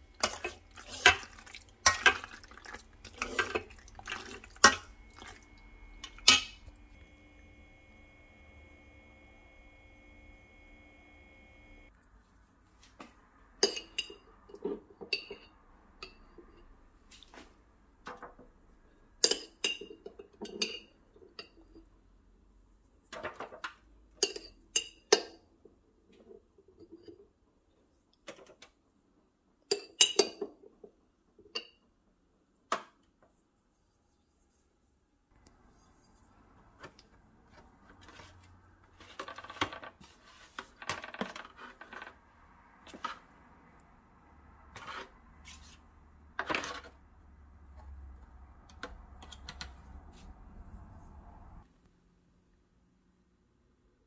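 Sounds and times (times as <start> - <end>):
spoon scraping foil pan: 44.7 - 45.8.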